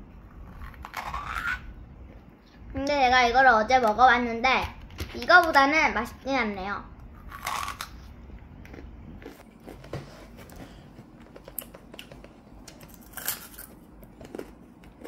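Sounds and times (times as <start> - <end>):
child chewing crunchy candy: 7.2 - 9.9, 10.5 - 15.0.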